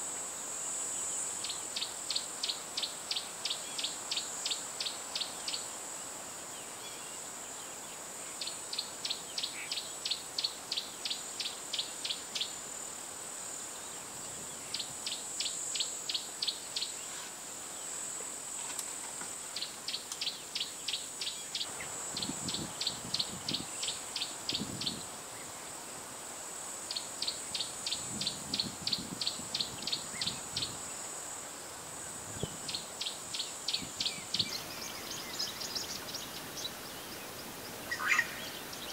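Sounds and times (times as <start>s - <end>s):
sharp insect chirps: 0.0s - 38.9s
high-pitched insect drone: 32.1s - 38.9s.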